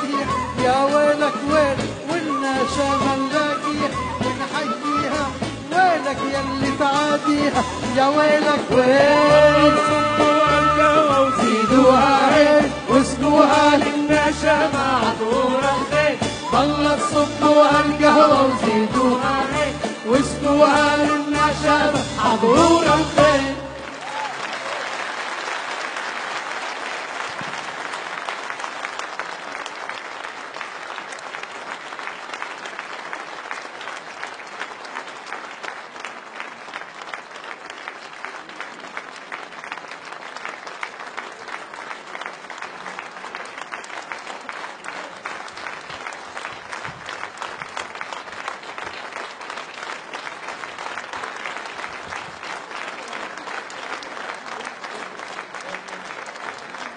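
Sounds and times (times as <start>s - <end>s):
audience applauding: 22.8s - 56.9s.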